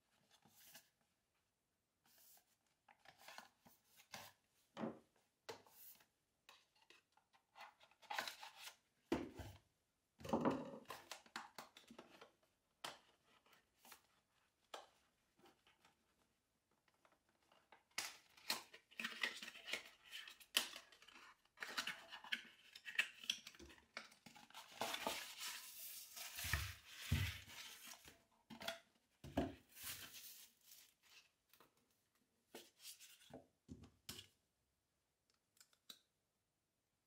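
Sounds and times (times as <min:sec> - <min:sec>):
cardboard rustling and scraping: 0:24.4 - 0:28.3, 0:29.3 - 0:31.4.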